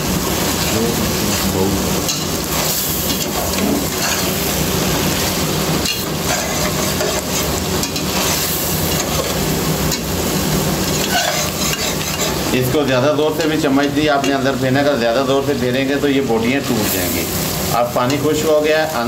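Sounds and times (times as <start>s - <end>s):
chicken sizzling in oil: 0.0s - 19.0s
spatula scraping a pot: 5.8s - 9.4s, 10.9s - 12.4s.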